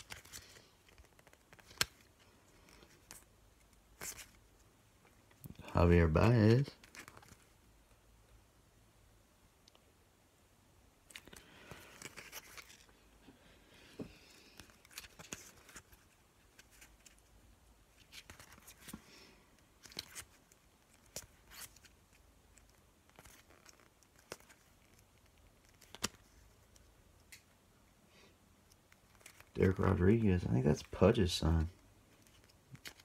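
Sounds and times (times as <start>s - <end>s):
cards being flipped: 0.0s - 5.4s, 6.4s - 7.5s, 11.1s - 13.0s, 14.2s - 17.3s, 17.9s - 27.6s, 28.6s - 29.9s, 30.8s - 33.0s.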